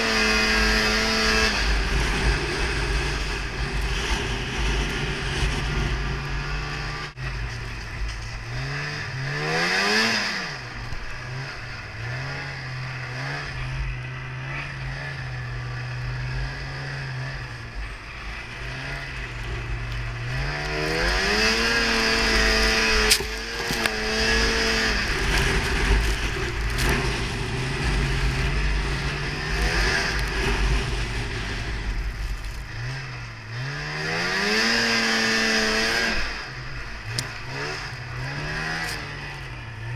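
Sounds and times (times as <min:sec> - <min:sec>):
snowmobile engine revving: 0:00.0 - 0:39.9.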